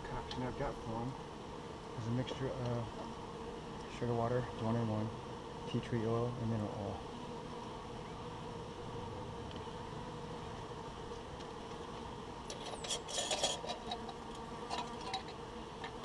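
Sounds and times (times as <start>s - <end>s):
honeybees buzzing: 0.0s - 16.0s.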